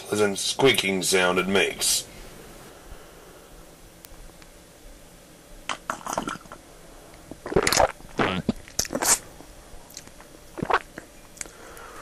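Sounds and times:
person gulping and swallowing: 0:05.7 - 0:06.6, 0:07.3 - 0:09.2, 0:09.9 - 0:11.5.

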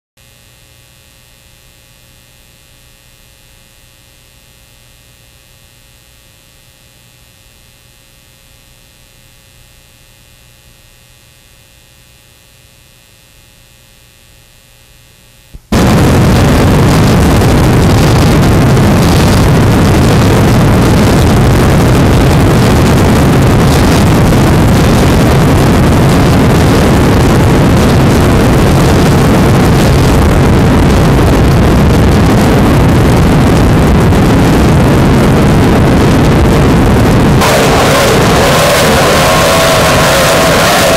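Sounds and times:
faint electrical hum: 0:00.2 - 0:38.2
powerboat running fast: 0:37.4 - 0:40.9.

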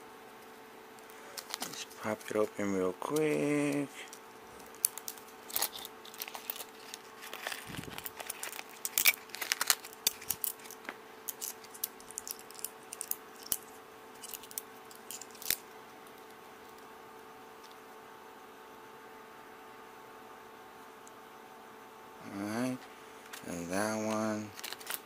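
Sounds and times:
faint steady hum: 0:00.0 - 0:25.0
hands handling small parts: 0:01.0 - 0:02.0, 0:03.1 - 0:15.7, 0:24.1 - 0:25.0
packaging rustling: 0:01.0 - 0:02.3, 0:03.1 - 0:16.3, 0:23.2 - 0:25.0.

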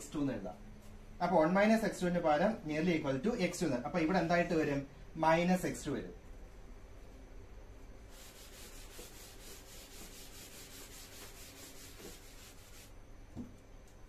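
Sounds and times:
eraser wiping chalkboard: 0:08.1 - 0:13.0.

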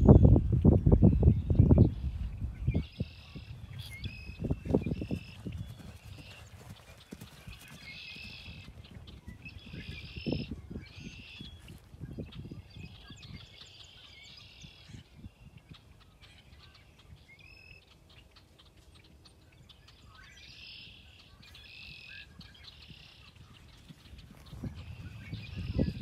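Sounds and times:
small birds chirping: 0:00.0 - 0:26.0
horse hooves cantering on turf: 0:04.4 - 0:09.8.

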